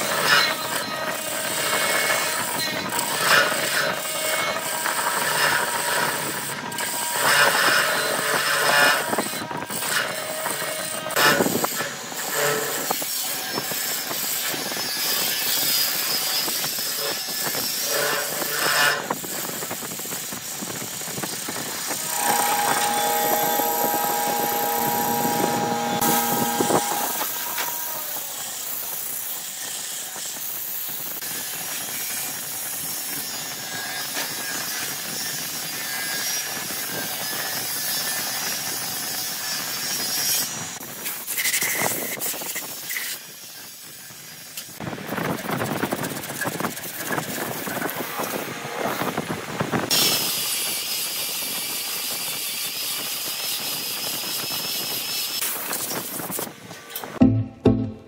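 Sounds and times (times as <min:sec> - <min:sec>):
gouge scraping spinning wood: 0:21.9 - 0:28.0
steady pitched whine: 0:22.0 - 0:28.3
sandpaper rasping on wood: 0:22.1 - 0:27.7.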